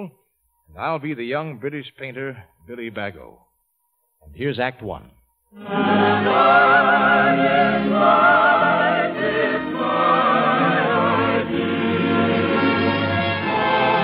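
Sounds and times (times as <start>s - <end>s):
choir singing with orchestra: 5.6s - 14.0s.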